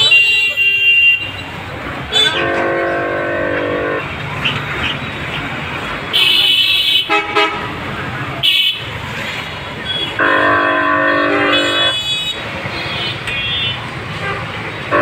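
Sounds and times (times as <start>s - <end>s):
street traffic: 0.0s - 15.0s
high-pitched horn blaring: 2.1s - 4.1s, 9.9s - 15.0s
low multi-toned horn: 2.1s - 4.1s, 10.2s - 12.0s.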